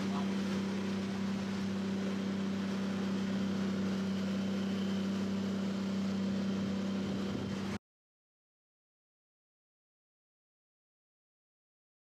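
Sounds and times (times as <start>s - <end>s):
motorboat engine droning: 0.0s - 7.8s
water noise: 0.0s - 7.8s
wind: 0.0s - 7.8s.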